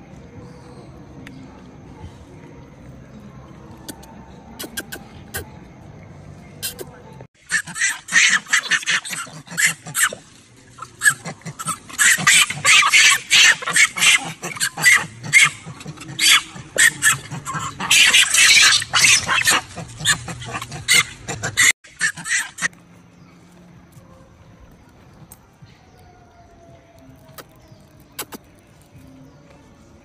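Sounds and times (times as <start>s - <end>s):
macaques shrieking: 7.4s - 22.7s.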